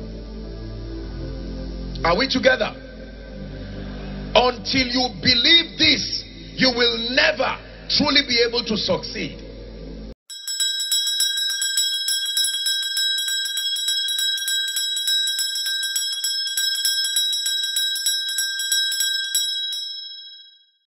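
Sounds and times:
small bell ringing rapidly: 10.3s - 20.7s.

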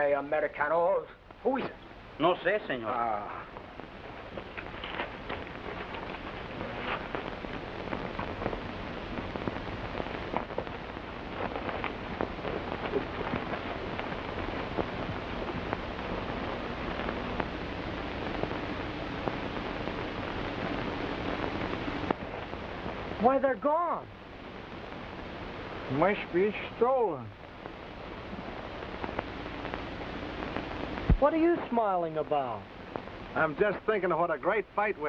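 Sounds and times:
crackling film surface noise: 0.0s - 35.0s
faint steady hum: 0.0s - 35.0s.

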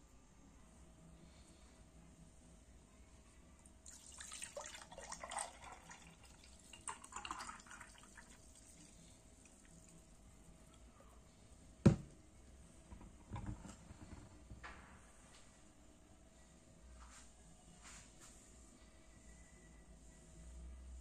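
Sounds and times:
juice pouring into a glass: 3.8s - 10.2s.

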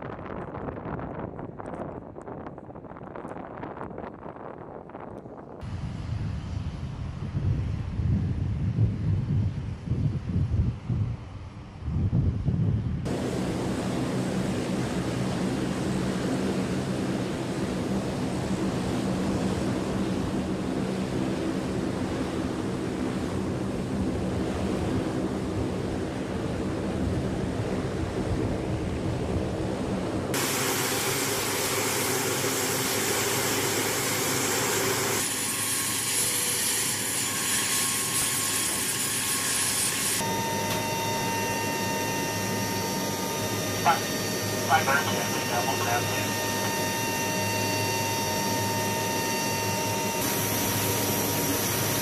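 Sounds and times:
turboprop engines droning: 0.0s - 52.0s
high steady whine: 40.1s - 52.0s.

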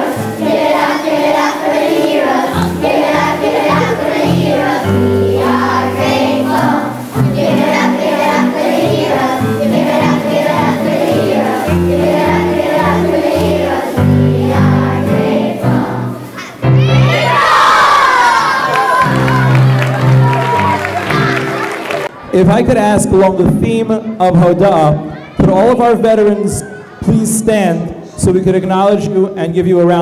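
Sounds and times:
instrumental accompaniment: 0.0s - 22.2s
children's choir singing: 0.0s - 22.3s.

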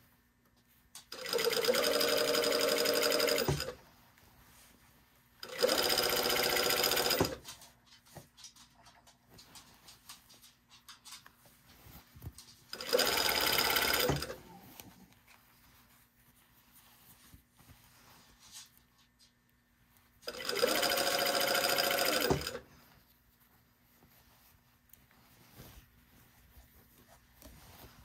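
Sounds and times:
fabric rustling: 0.0s - 28.0s
sewing machine stitching: 1.1s - 3.8s, 5.4s - 7.5s, 12.7s - 14.4s, 20.2s - 22.6s.

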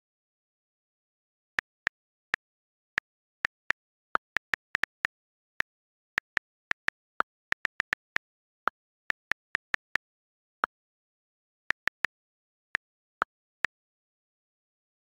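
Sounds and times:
phone keyboard taps: 1.6s - 10.0s.

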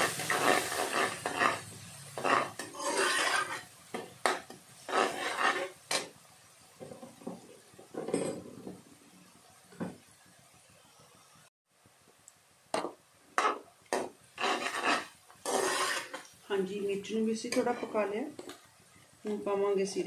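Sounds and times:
skimmer scraping frying onions: 0.0s - 6.2s, 12.8s - 19.6s.

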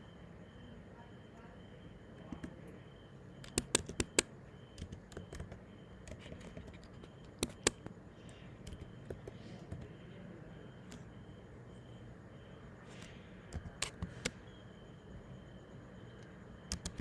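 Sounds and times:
keyboard keystrokes: 3.4s - 7.9s, 8.6s - 9.9s, 13.5s - 14.4s, 16.2s - 17.0s.

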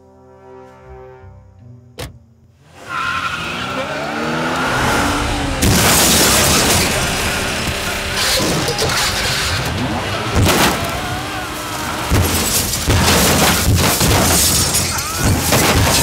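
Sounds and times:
rumbling undertone: 3.9s - 12.4s
heavy crashing impacts: 4.4s - 16.0s
metal breaking noises: 5.5s - 16.0s.

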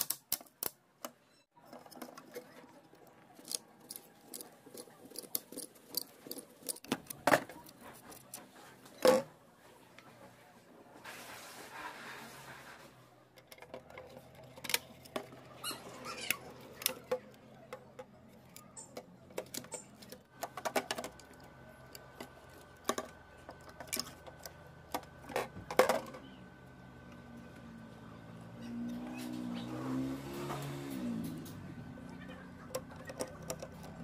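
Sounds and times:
small parts clicking and tapping: 0.0s - 9.2s, 13.3s - 26.3s, 30.6s - 34.0s
short squeaks: 15.5s - 16.8s.

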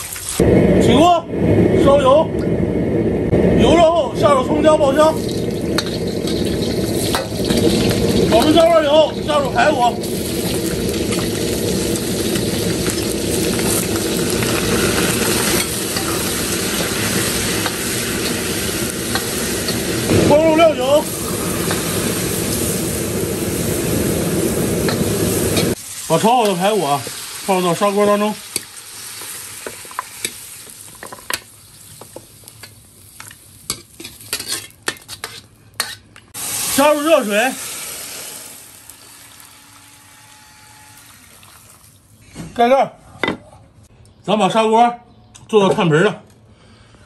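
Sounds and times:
low rumble: 0.4s - 25.8s
meat sizzling in hot oil: 4.9s - 35.0s, 36.4s - 41.8s.

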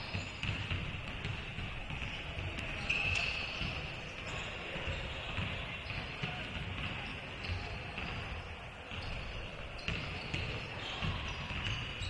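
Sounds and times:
sneaker squeak: 0.0s - 12.0s
basketball bouncing on hardwood: 0.1s - 2.8s, 5.3s - 8.2s, 9.9s - 11.8s.

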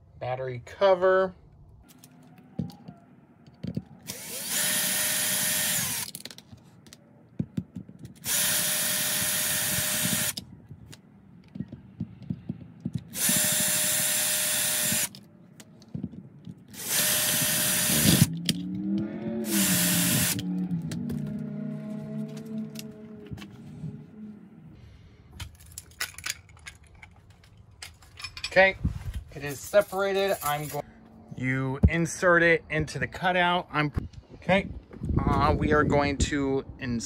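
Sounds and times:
handling clicks and taps: 2.0s - 4.0s, 6.1s - 8.2s, 10.7s - 13.2s, 15.1s - 16.7s
cordless drill motor whine: 3.6s - 6.1s, 8.2s - 10.4s, 13.1s - 15.2s, 16.7s - 18.3s, 19.4s - 20.5s.

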